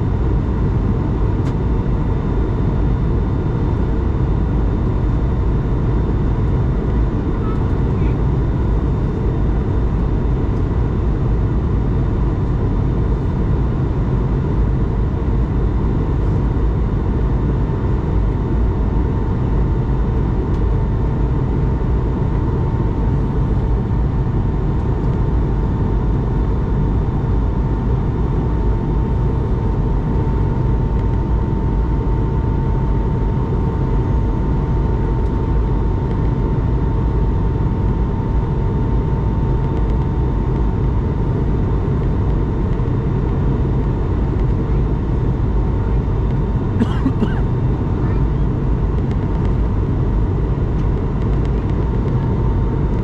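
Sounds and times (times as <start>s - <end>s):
aircraft cabin air and engine rush: 0.0s - 53.0s
jet engine whine: 0.0s - 53.0s.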